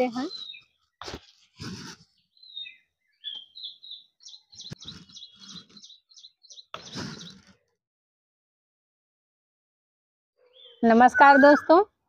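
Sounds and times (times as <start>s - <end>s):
small birds chirping: 0.0s - 7.7s, 10.4s - 11.9s.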